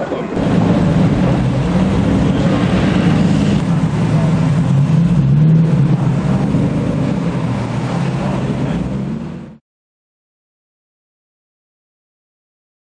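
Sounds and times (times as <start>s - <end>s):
car engine running: 0.4s - 9.6s.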